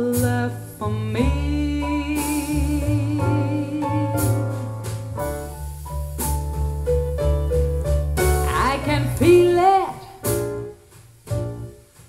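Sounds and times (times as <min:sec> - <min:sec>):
person singing: 0:00.0 - 0:04.6, 0:08.5 - 0:10.3
jazz piano over bass: 0:00.0 - 0:12.0.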